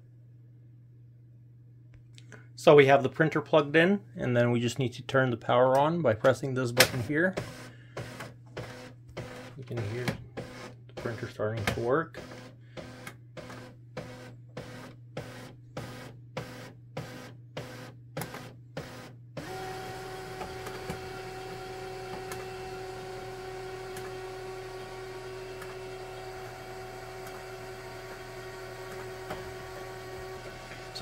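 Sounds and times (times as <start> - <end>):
laser printer rhythmic pulsing: 6.8 - 31.0
printer mechanical running hum: 6.8 - 31.0.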